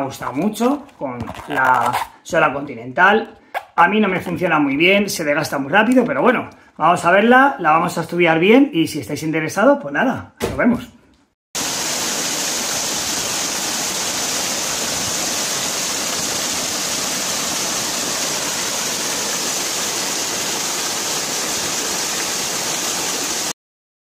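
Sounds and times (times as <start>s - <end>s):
waterfall pouring onto rocks: 11.6s - 23.5s.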